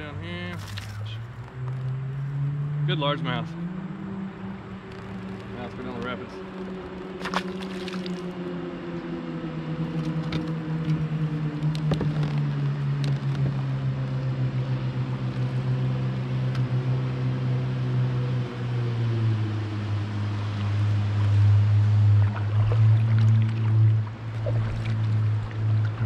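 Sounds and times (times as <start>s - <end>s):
watercraft engine droning: 0.0s - 26.0s
kayak paddle knocking water: 6.4s - 8.5s, 20.6s - 26.0s.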